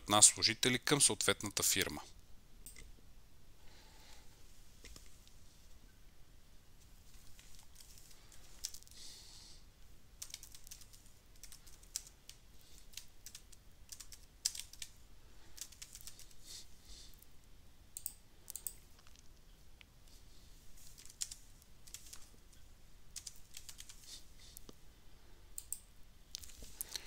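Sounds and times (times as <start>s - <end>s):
typing on a keyboard: 10.2s - 15.0s, 15.6s - 16.4s, 20.9s - 22.3s, 23.2s - 24.1s
mouse clicks: 18.0s - 18.8s.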